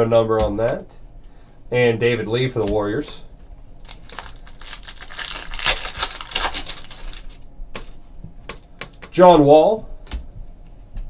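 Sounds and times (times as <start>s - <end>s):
foil wrapper crinkling and tearing: 3.8s - 7.4s.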